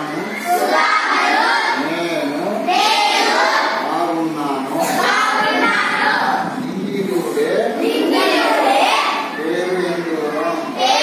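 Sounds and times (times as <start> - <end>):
children chanting in unison: 0.0 - 1.9, 2.7 - 4.0, 4.8 - 6.4.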